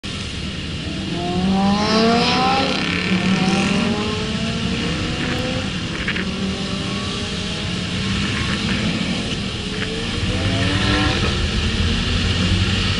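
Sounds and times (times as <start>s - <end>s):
car engines accelerating: 0.1s - 12.9s.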